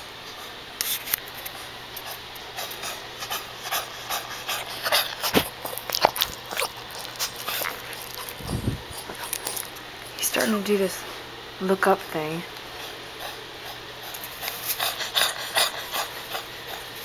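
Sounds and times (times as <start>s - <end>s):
dog's noisy labored breathing: 1.5s - 10.6s, 12.7s - 17.0s.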